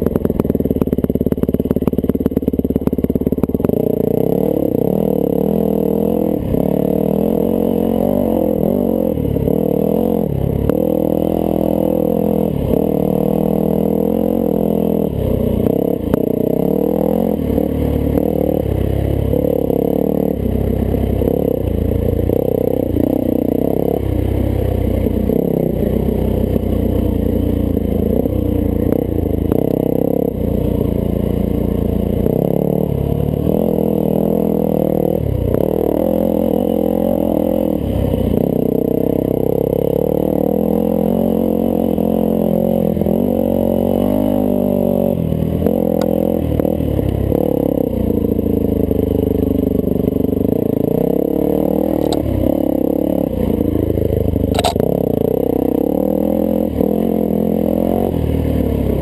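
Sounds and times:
muffled motorcycle engine: 0.0 - 59.0
sharp knock: 54.5 - 54.8.

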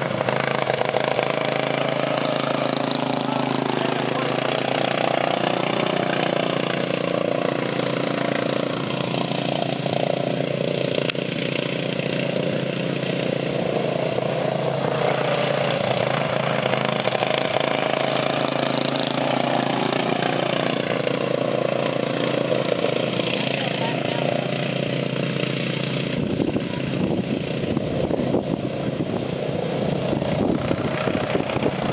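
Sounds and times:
lawn tractor engines racing: 0.0 - 31.9.

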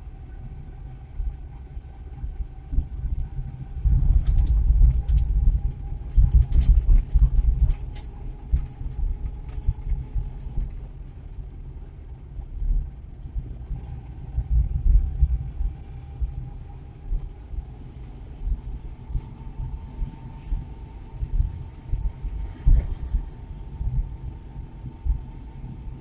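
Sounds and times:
engine and road rumble in cab: 0.0 - 26.0
faint steady whine: 0.0 - 26.0
light rattling clicks and jangles: 4.0 - 11.6.

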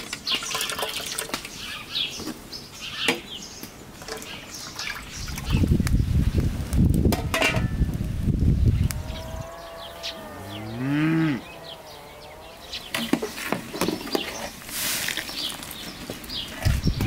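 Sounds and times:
small birds chirping: 0.0 - 6.9, 8.5 - 17.0
cow mooing: 9.0 - 12.9.

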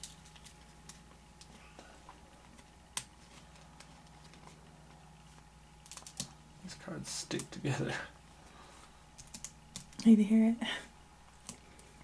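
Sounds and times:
trading cards clicking and tapping: 5.8 - 6.4.

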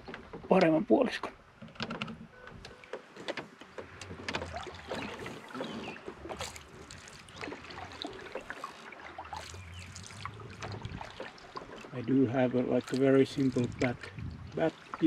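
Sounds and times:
small clicks and knocks: 1.6 - 5.1
paddle strokes swishing in water: 2.7 - 15.0.

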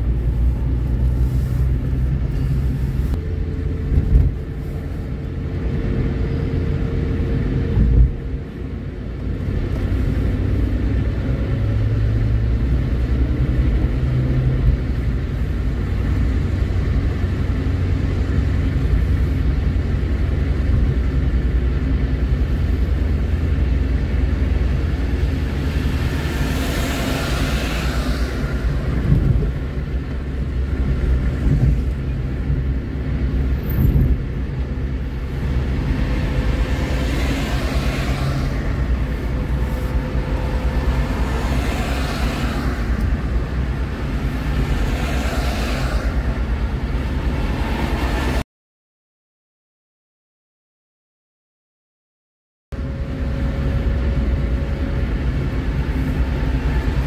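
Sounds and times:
road and engine rumble: 0.0 - 48.5, 52.7 - 57.0
vehicles swishing past: 22.3 - 48.4.

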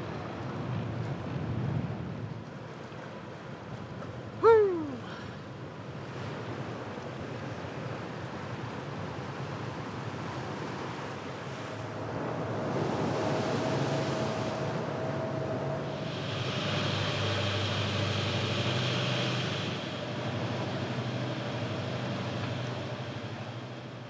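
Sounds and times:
wind on microphone: 9.7 - 21.3.

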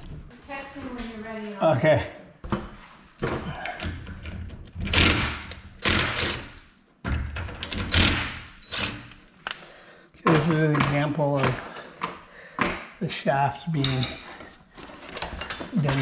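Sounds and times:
metal bars clanking and scraping: 13.6 - 16.0.

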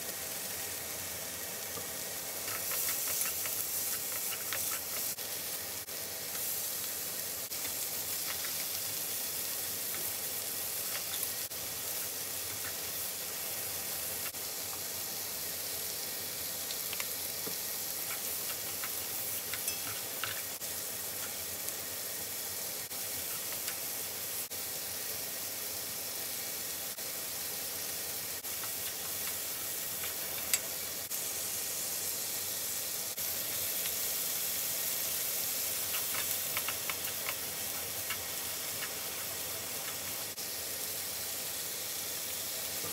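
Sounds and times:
food sizzling in a frying pan: 0.0 - 42.9
utensils clicking against pan: 2.4 - 5.2, 16.9 - 20.6, 28.5 - 30.8, 35.8 - 40.1.

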